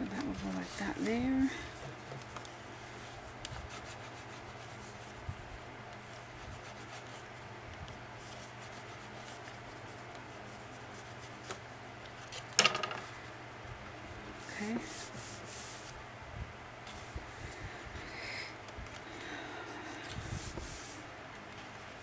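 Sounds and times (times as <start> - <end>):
loud handling noise: 12.3 - 13.2.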